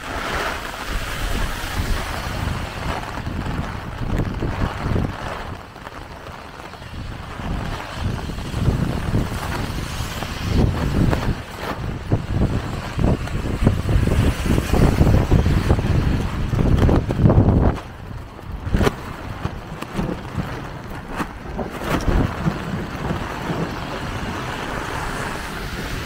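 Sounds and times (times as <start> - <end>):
heavy rain hiss: 0.0 - 19.6, 20.4 - 26.0
wind buffeting microphone: 0.0 - 26.0.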